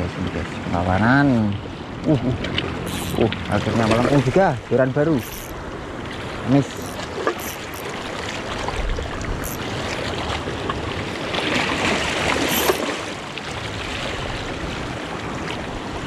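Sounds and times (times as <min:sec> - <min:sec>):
water lapping and sloshing: 0:00.0 - 0:16.0
fishing reel cranking: 0:02.8 - 0:03.3, 0:05.2 - 0:05.6, 0:06.7 - 0:07.9, 0:09.4 - 0:09.6, 0:12.4 - 0:12.9.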